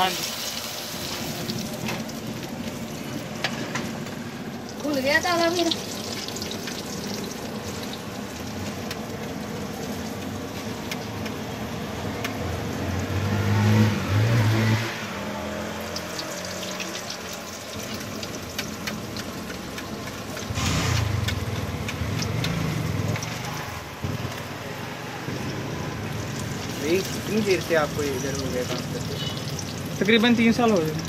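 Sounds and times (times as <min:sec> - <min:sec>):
patties sizzling in oil: 0:00.0 - 0:31.0
motorcycle passing: 0:09.1 - 0:30.0.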